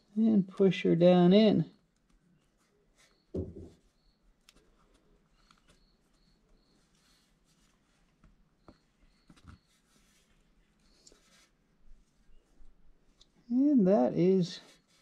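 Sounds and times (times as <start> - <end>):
small clicks and rustles: 1.7 - 13.5
soft thump: 3.3 - 3.8.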